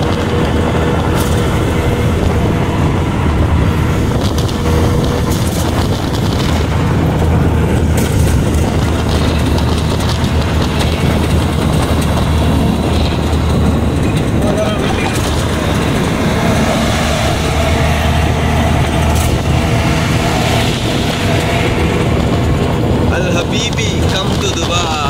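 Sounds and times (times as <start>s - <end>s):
auto-rickshaw engine running: 0.0s - 25.0s
road and wind noise: 0.0s - 25.0s.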